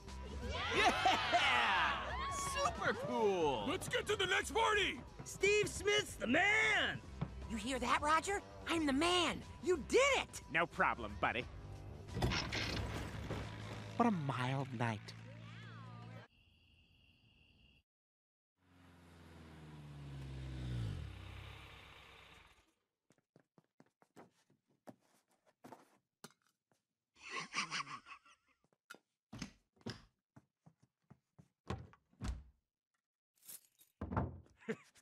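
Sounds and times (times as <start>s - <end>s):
vehicle passing by: 18.6s - 22.5s.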